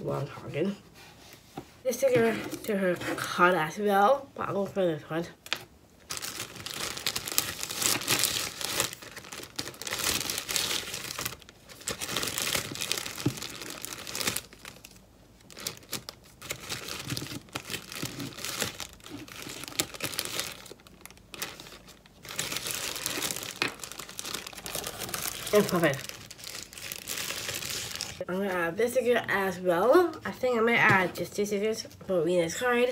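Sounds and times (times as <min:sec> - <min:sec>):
paper sticker sheets crinkling: 0:06.1 - 0:28.2.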